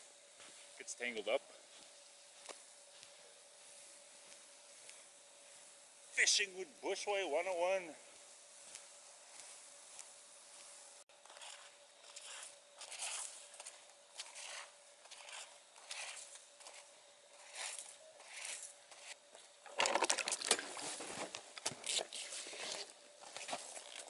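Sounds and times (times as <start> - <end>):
footsteps crunching in snow: 7.0 - 19.2, 20.3 - 24.0.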